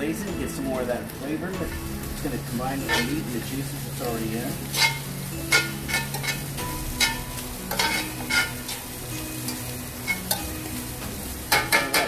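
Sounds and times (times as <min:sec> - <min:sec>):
meat sizzling in a pan: 0:00.0 - 0:12.0
tongs clicking and scraping pan: 0:02.8 - 0:10.8.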